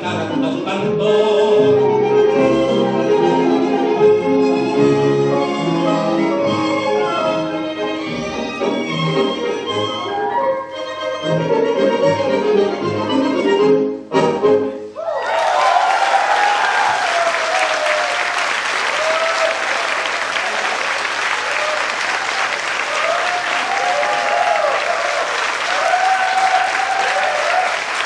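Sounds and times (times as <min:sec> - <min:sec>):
audience applauding: 0:15.1 - 0:28.0.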